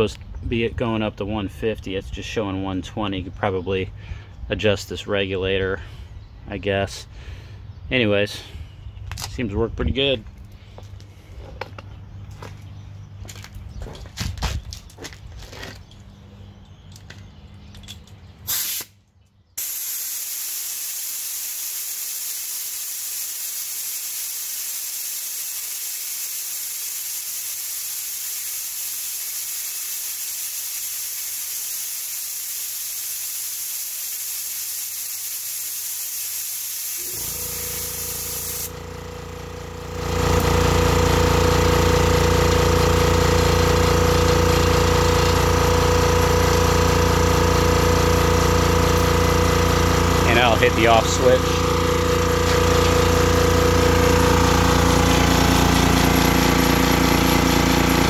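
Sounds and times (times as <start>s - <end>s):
air compressor motor running: 18.5s - 18.9s, 19.6s - 58.0s
compressed air hissing: 18.5s - 19.0s, 19.6s - 38.8s.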